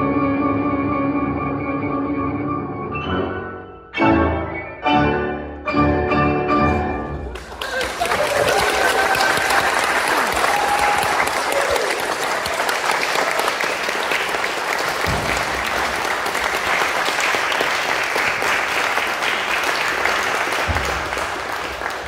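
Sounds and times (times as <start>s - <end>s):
audience applauding: 7.3s - 22.0s.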